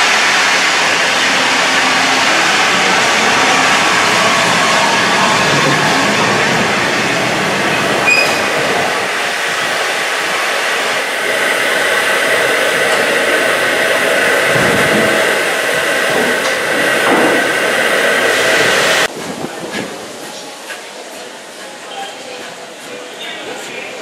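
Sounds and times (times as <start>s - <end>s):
steam hissing: 0.0s - 20.0s.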